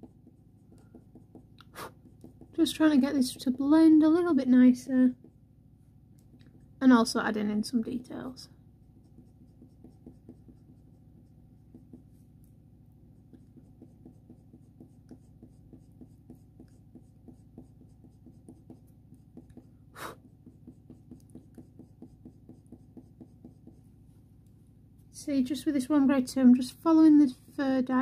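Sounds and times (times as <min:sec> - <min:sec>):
colour pencil scratching on paper: 0:00.0 - 0:05.4, 0:07.8 - 0:24.2.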